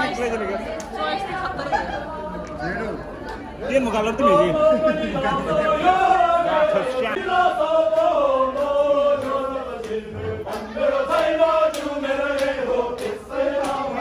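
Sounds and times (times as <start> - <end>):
male voices chanting: 3.8 - 14.0.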